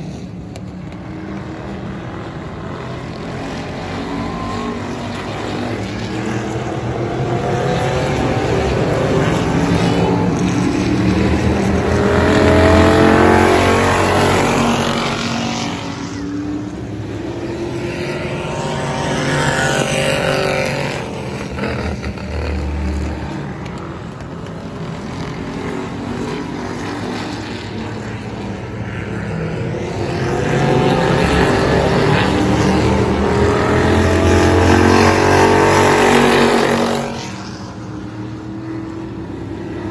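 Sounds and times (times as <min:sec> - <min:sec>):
race car engines passing: 0:00.0 - 0:39.9.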